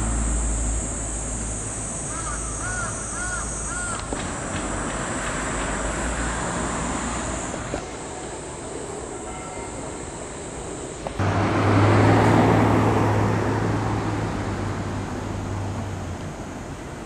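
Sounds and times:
city traffic rumble: 0.0s - 17.0s
steady low hum: 0.0s - 17.0s.

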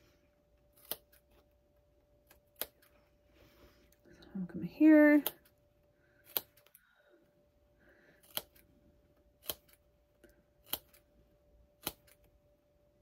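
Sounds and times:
scissors snipping fabric: 0.7s - 1.4s, 2.2s - 2.9s, 6.2s - 6.8s, 8.2s - 8.7s, 9.4s - 9.9s, 10.6s - 11.1s, 11.8s - 12.3s.

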